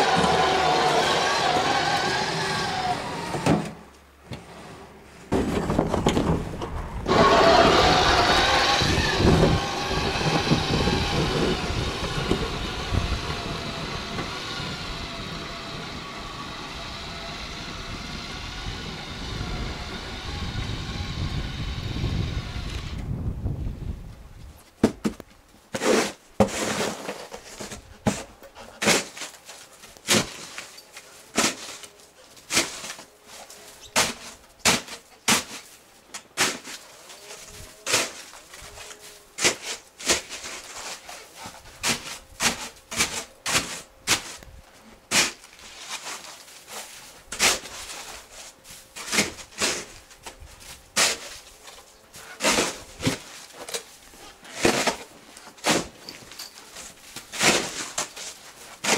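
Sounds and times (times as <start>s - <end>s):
snow shovel scraping snow: 7.1s - 15.4s, 25.7s - 29.3s, 31.3s - 31.8s, 36.4s - 44.4s, 45.1s - 51.5s, 52.2s - 56.0s, 56.8s - 58.9s.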